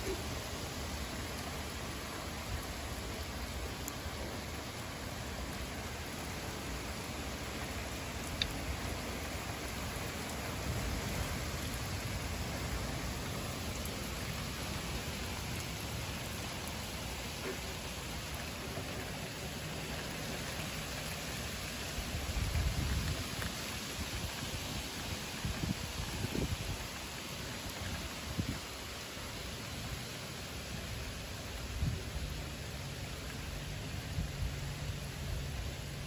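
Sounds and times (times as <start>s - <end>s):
heavy rain pouring: 0.0s - 36.0s.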